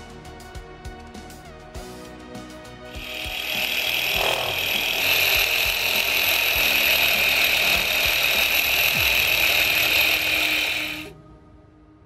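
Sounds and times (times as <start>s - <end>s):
model engine mechanical whir: 2.9s - 11.1s.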